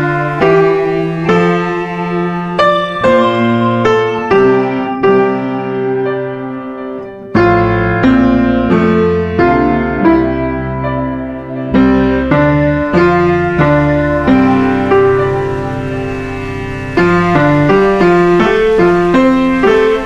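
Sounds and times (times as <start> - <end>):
slow piano music: 0.0 - 20.0.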